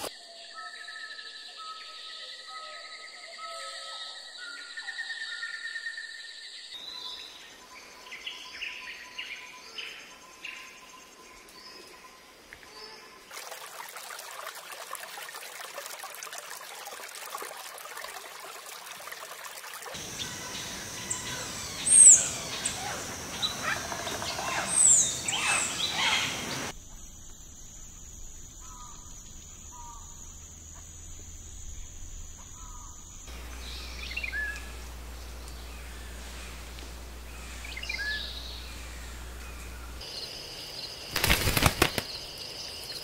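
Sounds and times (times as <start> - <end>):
birds calling and chirping: 19.9 - 26.7, 32.4 - 43.0.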